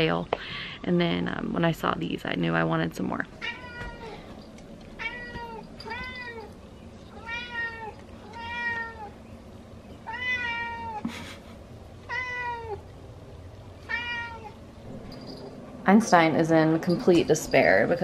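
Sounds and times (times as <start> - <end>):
cat meowing: 3.4 - 4.2, 5.0 - 9.2, 10.0 - 11.0, 12.1 - 12.8, 13.9 - 14.6.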